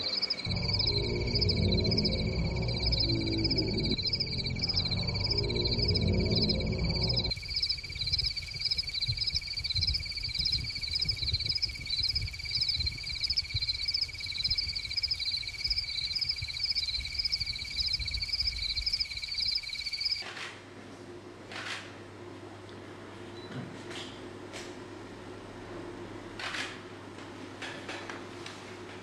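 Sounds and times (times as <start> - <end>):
insects chirping: 0.0 - 20.2
low rumble: 0.4 - 7.4.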